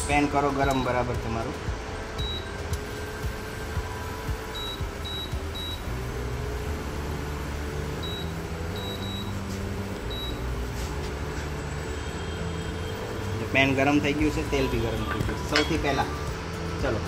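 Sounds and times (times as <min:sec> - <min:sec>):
induction cooktop humming: 0:00.0 - 0:16.5
short high beeps: 0:02.2 - 0:02.6, 0:04.5 - 0:05.9, 0:08.0 - 0:09.4, 0:10.1 - 0:10.6.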